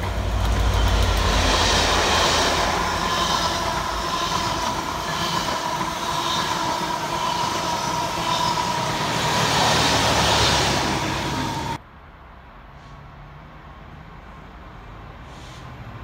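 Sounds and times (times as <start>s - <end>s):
train wheels rumbling on rail: 0.0s - 11.8s.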